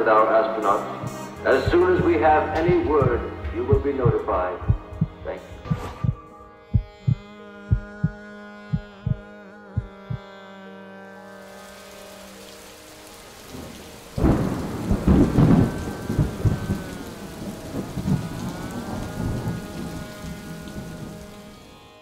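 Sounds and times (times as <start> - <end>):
steady rain hiss: 0.0 - 4.6, 11.3 - 22.0
held musical drone: 0.0 - 22.0
thunderclap rumbling: 13.5 - 21.4.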